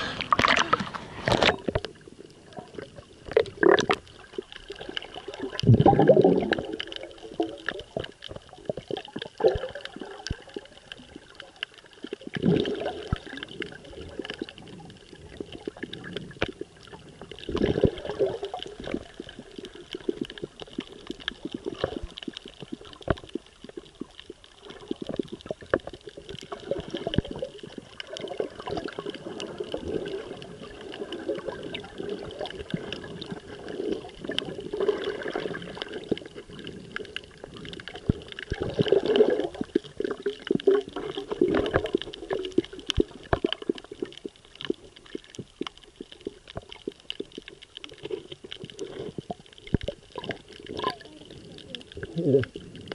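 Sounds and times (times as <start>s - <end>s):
water sloshing and bubbling: 0.0s - 52.9s.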